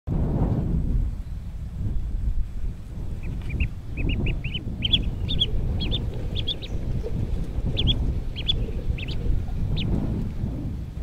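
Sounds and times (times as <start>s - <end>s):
steady low rumble: 0.1s - 11.0s
ducklings peeping: 3.0s - 10.3s.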